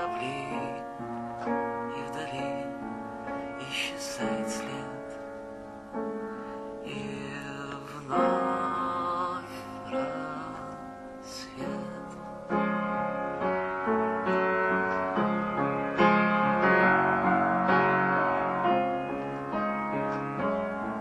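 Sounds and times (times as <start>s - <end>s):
person singing: 0.0s - 5.2s, 6.8s - 12.6s
held backing chords: 0.0s - 21.0s.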